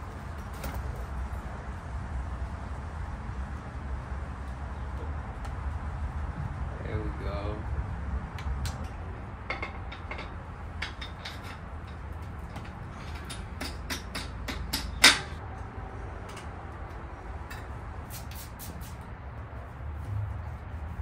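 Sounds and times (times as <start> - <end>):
clicks of tools on bike parts: 8.4 - 15.4.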